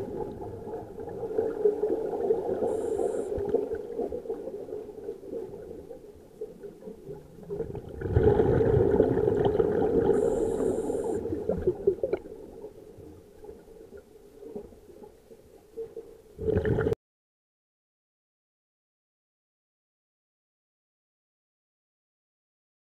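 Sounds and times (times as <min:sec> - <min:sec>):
gurgling regulator bubbles: 0:00.0 - 0:14.8, 0:16.4 - 0:17.0.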